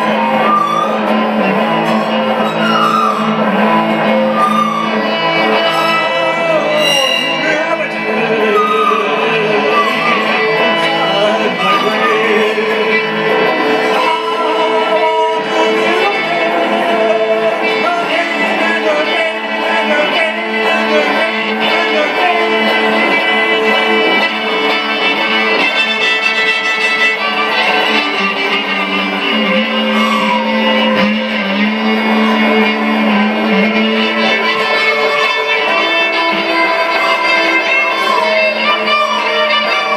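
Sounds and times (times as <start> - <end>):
fiddle solo: 0.0 - 39.9
guitar accompaniment: 0.0 - 39.9.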